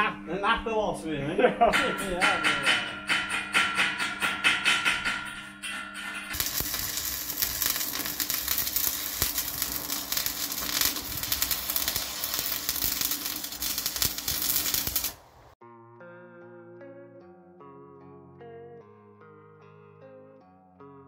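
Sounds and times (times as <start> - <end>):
arc welding crackling sizzle: 6.2 - 15.6.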